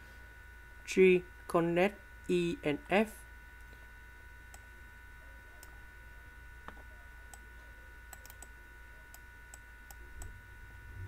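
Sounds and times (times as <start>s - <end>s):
faint high whine: 0.0s - 11.0s
low electrical hum: 0.0s - 11.0s.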